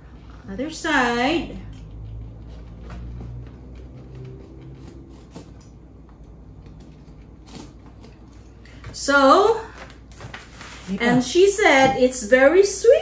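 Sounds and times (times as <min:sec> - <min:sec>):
low steady hum: 0:00.0 - 0:13.0
knife crunching through fruit rind: 0:03.3 - 0:05.8.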